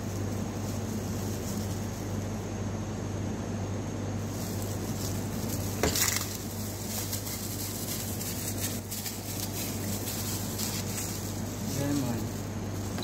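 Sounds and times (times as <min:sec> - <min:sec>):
kitchen equipment hum: 0:00.0 - 0:13.0.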